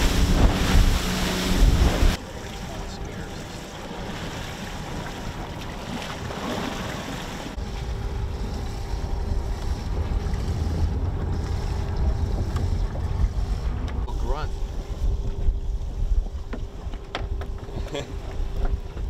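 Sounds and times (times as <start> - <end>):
wind buffeting microphone: 0.0 - 2.2
ocean waves: 0.0 - 15.4.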